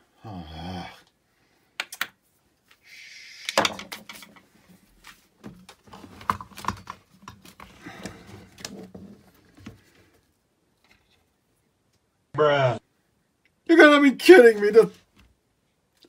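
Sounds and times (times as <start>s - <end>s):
plastic parts scraping: 5.5s - 10.2s
plastic clicks knocks and rattles: 5.6s - 7.7s.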